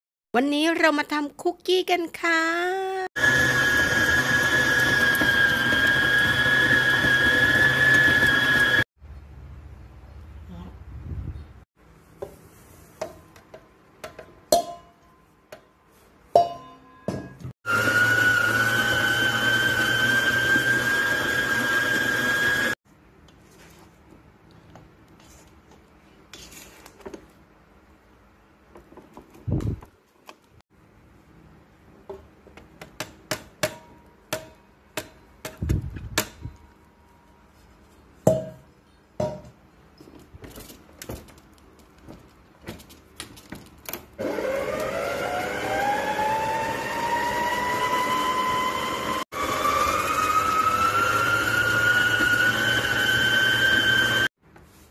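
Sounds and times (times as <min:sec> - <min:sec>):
stand mixer motor whining: 0:03.2 - 0:08.9, 0:17.7 - 0:22.8, 0:44.2 - 0:54.3
knocks and clinks in steel bowl: 0:14.5 - 0:15.0, 0:16.4 - 0:17.5.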